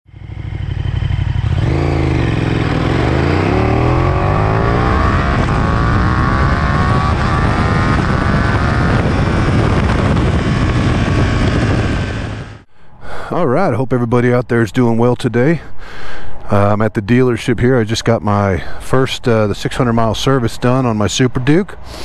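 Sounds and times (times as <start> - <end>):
motorcycle engine accelerating: 0.1 - 12.6.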